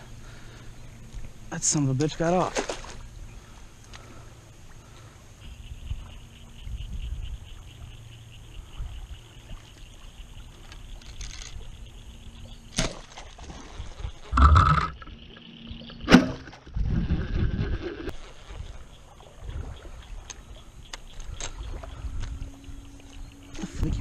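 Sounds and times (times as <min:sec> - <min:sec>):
wind noise on microphone: 0:05.7 - 0:07.5, 0:16.7 - 0:18.8, 0:21.4 - 0:22.9, 0:23.6 - 0:24.0
arrow hitting water: 0:12.7 - 0:13.2, 0:16.0 - 0:16.6.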